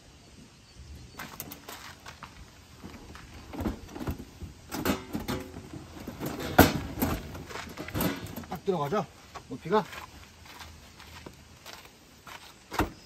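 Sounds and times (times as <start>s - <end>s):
gear knocks scrapes and rustles: 1.2s - 8.9s.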